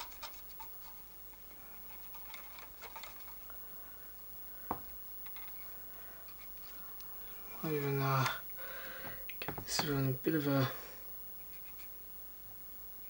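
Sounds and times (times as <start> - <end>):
cotton bud scratching: 0.0 - 3.6, 11.4 - 12.0.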